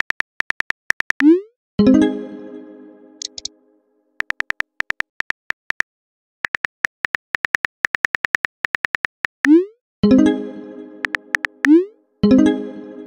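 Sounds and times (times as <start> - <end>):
phone keyboard typing clicks: 0.0 - 1.3, 3.2 - 3.5, 4.2 - 9.6, 11.0 - 11.8.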